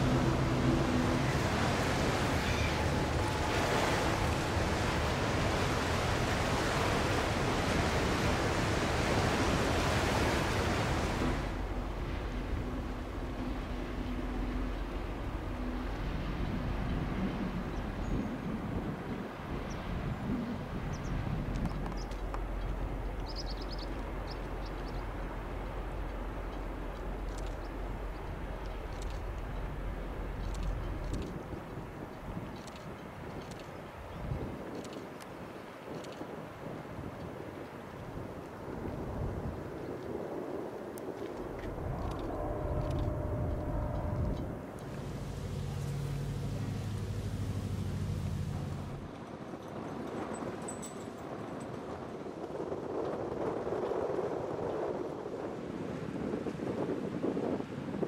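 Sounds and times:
river water rushing: 0.0 - 16.5, 44.5 - 49.1
ship engines rumbling: 0.0 - 18.8, 41.3 - 49.1
wind rushing: 41.3 - 49.1.

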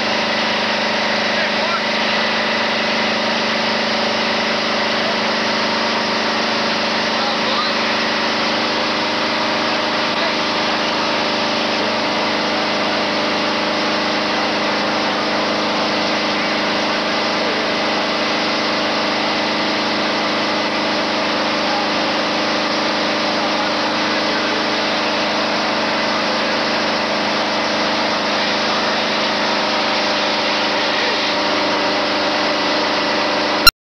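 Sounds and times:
fire engine motor droning: 0.0 - 33.7.

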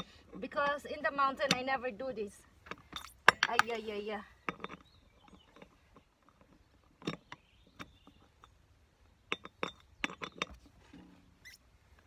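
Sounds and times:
lug nuts clinking on steel hub: 2.6 - 8.6, 9.2 - 10.7.

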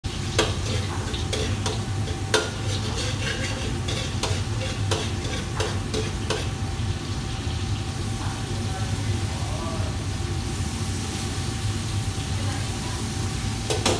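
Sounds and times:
frying sizzle: 0.0 - 13.9
metal ladle scraping a wok: 0.4 - 6.6.

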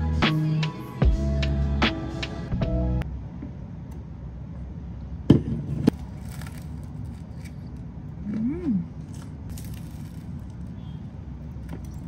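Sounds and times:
person humming mm: 8.2 - 8.9.

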